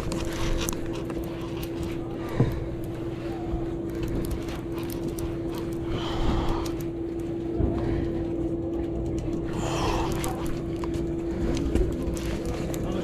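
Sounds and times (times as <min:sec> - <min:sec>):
boat engine humming: 0:00.0 - 0:13.0.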